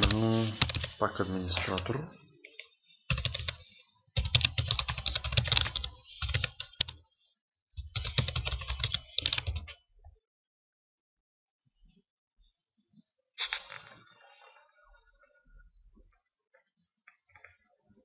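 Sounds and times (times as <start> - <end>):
typing on computer keyboard: 0.0 - 1.9, 2.5 - 3.6, 4.2 - 7.0, 7.8 - 9.8.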